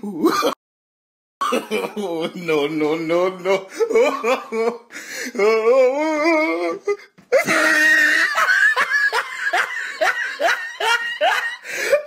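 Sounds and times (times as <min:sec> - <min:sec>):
boys laughing: 0:03.7 - 0:04.9, 0:06.2 - 0:12.0.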